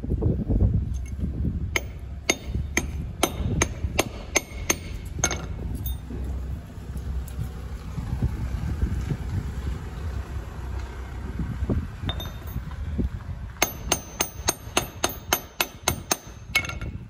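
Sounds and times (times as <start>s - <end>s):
hammer striking metal bar: 1.8s - 6.2s, 13.6s - 17.0s.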